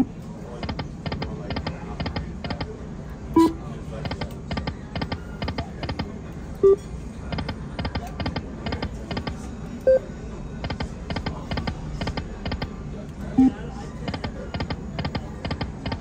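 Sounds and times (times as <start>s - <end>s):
short loud beeps: 3.4s - 3.6s.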